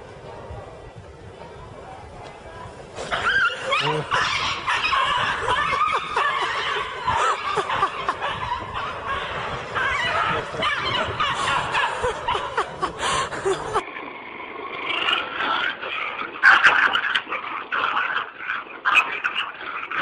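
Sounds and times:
people laughing and snickering: 0:03.0 - 0:13.8.

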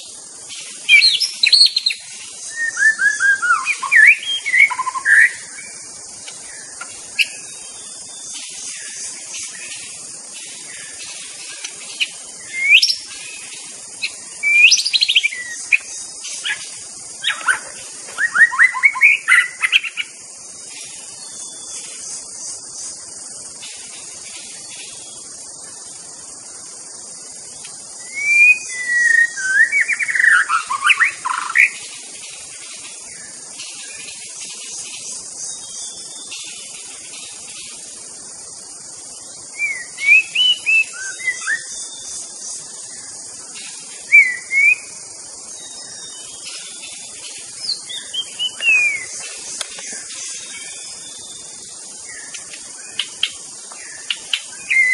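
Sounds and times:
bird whistling song: 0:00.0 - 0:05.8, 0:10.7 - 0:20.2, 0:28.0 - 0:31.8, 0:39.3 - 0:42.3, 0:42.9 - 0:54.9
steady high hiss: 0:00.0 - 0:54.9.

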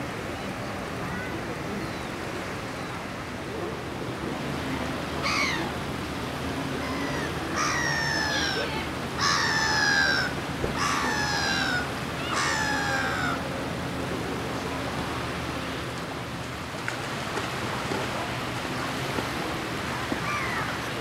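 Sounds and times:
bird calling: 0:06.8 - 0:13.4.

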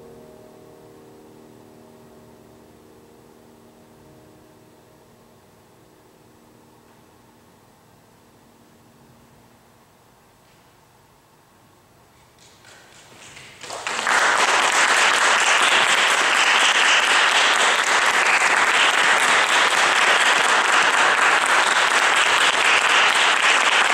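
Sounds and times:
audience applauding: 0:12.4 - 0:23.9.

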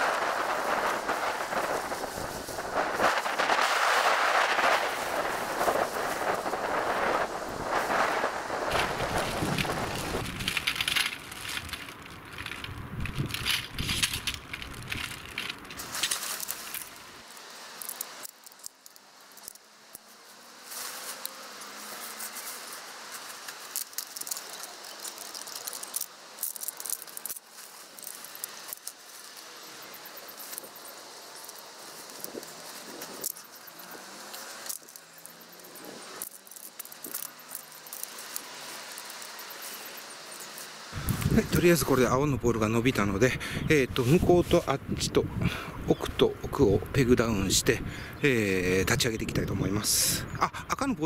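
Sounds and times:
metal tent poles clinking: 0:08.7 - 0:19.6.

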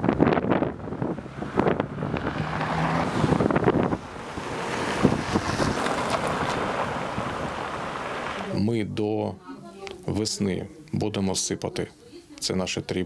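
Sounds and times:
wind buffeting microphone: 0:00.0 - 0:08.3
car engine hum: 0:00.0 - 0:08.6
tyres on gravelly road: 0:00.0 - 0:08.8
street traffic: 0:00.0 - 0:10.2.

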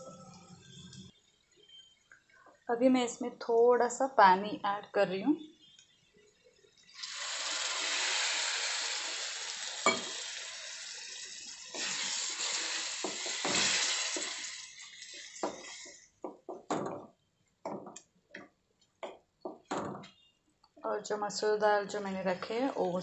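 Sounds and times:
water sizzling in hot pan: 0:06.8 - 0:16.1
spatula scraping pan: 0:11.8 - 0:16.0.

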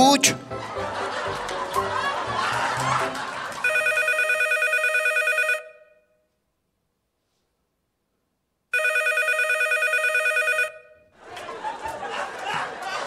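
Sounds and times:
telephone ringing: 0:03.6 - 0:06.0, 0:08.7 - 0:11.1.

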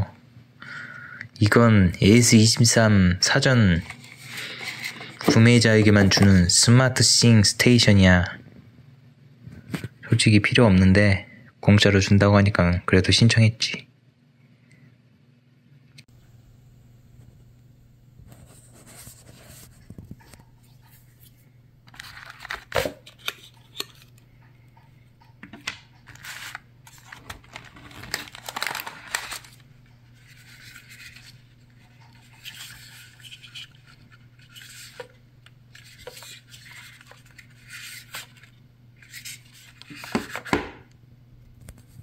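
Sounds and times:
faint steady hum: 0:00.0 - 0:42.0
packaging tearing and rustling: 0:21.9 - 0:24.1, 0:26.1 - 0:31.6.

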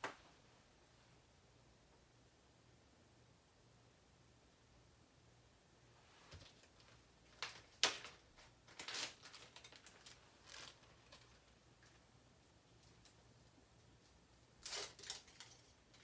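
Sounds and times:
plastic bag rustling: 0:06.3 - 0:12.0.

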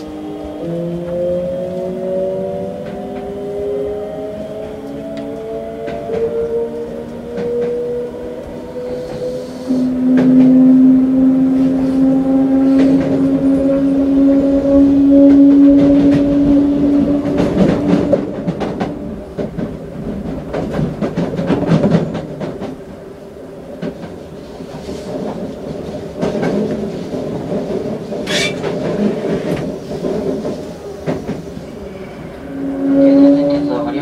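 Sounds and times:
wheel-on-rail rumble: 0:00.0 - 0:34.0
clack of rail joints: 0:02.8 - 0:03.4, 0:04.5 - 0:07.9, 0:08.8 - 0:10.6, 0:11.5 - 0:14.4, 0:15.2 - 0:22.9, 0:23.7 - 0:31.8.

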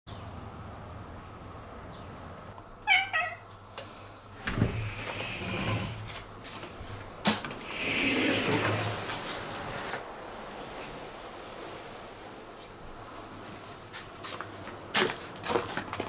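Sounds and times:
cat meowing: 0:02.8 - 0:03.5.

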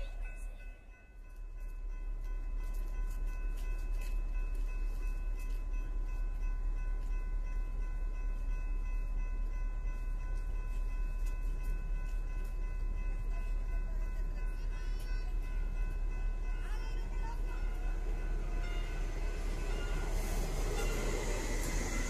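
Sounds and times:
railroad crossing bell ringing: 0:00.0 - 0:22.0
low wind rumble: 0:15.4 - 0:22.0.

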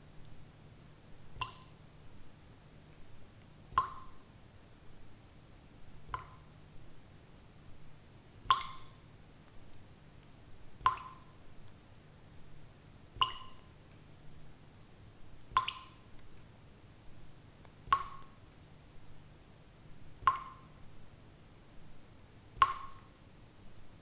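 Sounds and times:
water droplets plopping: 0:10.9 - 0:11.3, 0:13.2 - 0:13.6.

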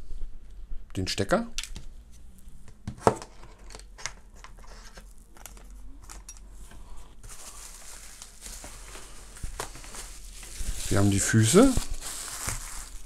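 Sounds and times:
plastic bag crinkling: 0:07.2 - 0:13.0
plastic packaging clicks and rustles: 0:07.2 - 0:13.0.

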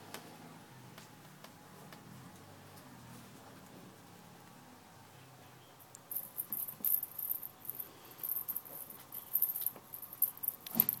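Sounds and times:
tinsel toy rustling: 0:06.1 - 0:11.0.

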